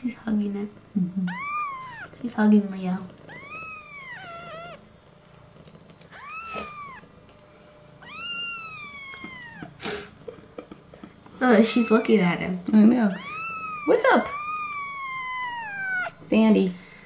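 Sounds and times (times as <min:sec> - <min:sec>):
kitten mewing: 0:01.3 - 0:02.2, 0:03.2 - 0:04.8, 0:06.1 - 0:07.1, 0:08.0 - 0:10.2, 0:11.6 - 0:12.2, 0:13.1 - 0:16.3.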